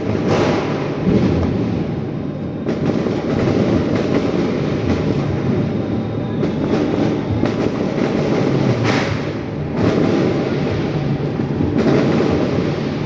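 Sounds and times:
firecrackers crackling: 0.0 - 13.0
sharp bang: 8.8 - 10.5.

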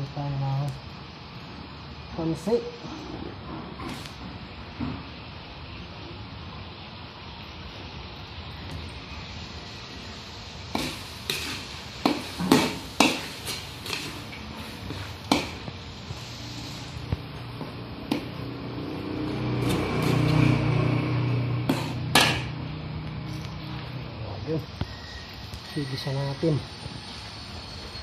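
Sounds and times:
metal spatula scraping a wok: 10.7 - 15.6.

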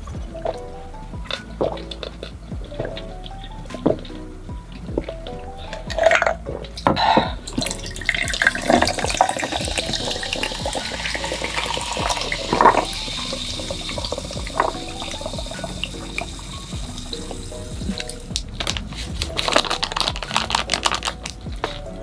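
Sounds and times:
ice clinking: 5.0 - 22.0
soda pouring and fizzing: 7.4 - 22.0.

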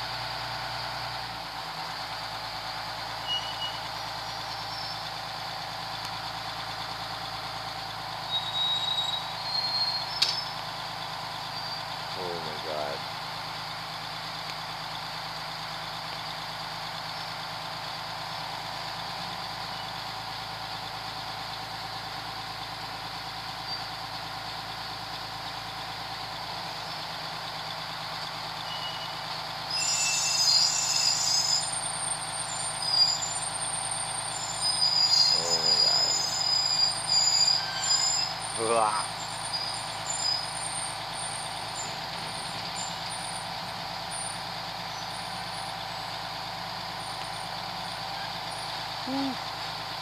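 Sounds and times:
high-pitched squeals: 28.6 - 41.9.

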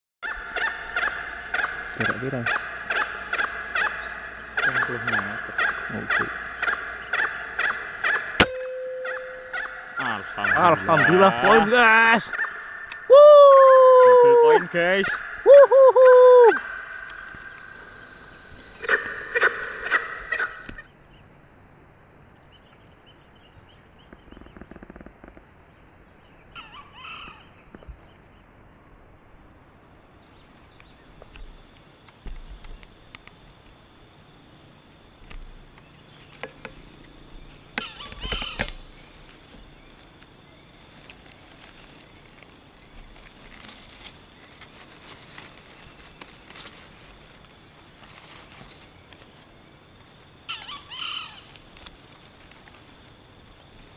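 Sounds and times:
bird calls: 0.2 - 21.3, 26.2 - 28.6, 35.8 - 43.7, 50.4 - 51.6
high insect drone: 0.2 - 53.9.

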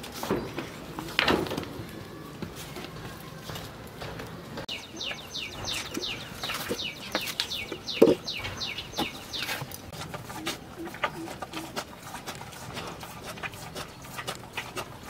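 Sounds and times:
bird chirping falling notes: 4.7 - 11.7.

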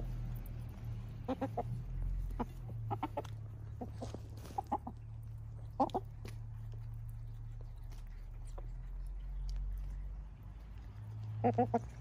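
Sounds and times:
low background hum: 0.0 - 12.0
hens clucking: 1.1 - 6.8, 11.1 - 12.0.

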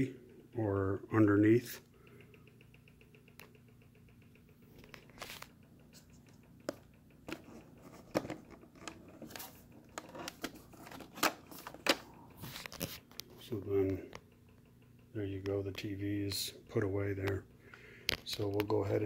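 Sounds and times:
low steady hum: 0.0 - 19.0
plastic clicks and knocks: 6.6 - 13.3.

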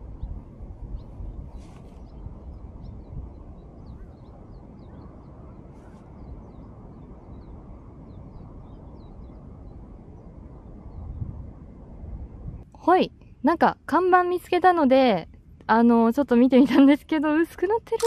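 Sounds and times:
wind rumbling on the microphone: 0.0 - 18.0
faint high bird chirps: 0.1 - 10.3.

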